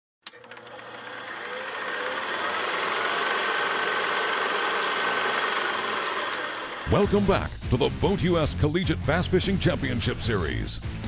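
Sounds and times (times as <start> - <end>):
film projector clatter: 0.2 - 7.1.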